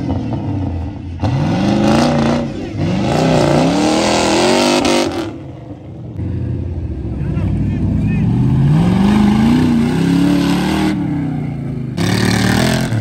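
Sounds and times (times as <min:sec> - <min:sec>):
pickup engine revving hard: 0:00.0 - 0:05.4, 0:08.3 - 0:13.0.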